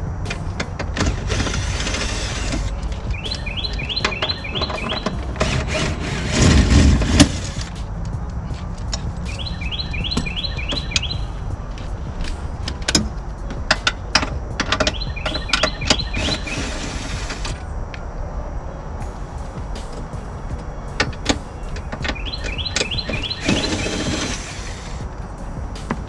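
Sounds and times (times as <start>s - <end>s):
bird chirping: 1.6s - 5.6s, 8.9s - 11.6s, 14.8s - 17.4s, 19.0s - 25.8s.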